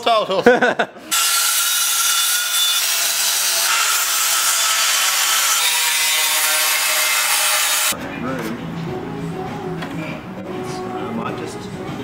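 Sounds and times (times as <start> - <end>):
angle grinder cutting steel: 1.1 - 8.0.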